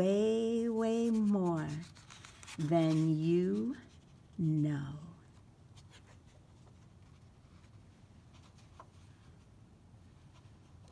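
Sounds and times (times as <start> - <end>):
page turning rustle: 1.0 - 4.0, 5.8 - 9.3.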